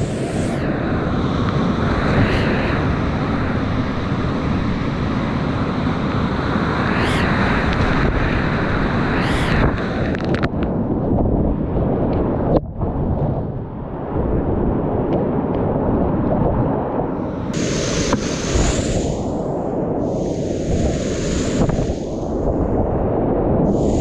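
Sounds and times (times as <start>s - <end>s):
spray hitting microphone: 17.6s - 19.5s, 20.1s - 22.3s.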